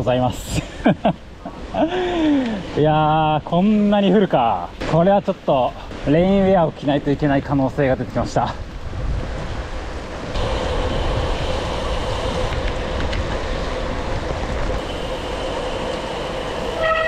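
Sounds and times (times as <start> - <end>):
heavy rain rushing: 9.6 - 17.0
faint steady tones: 14.8 - 17.0.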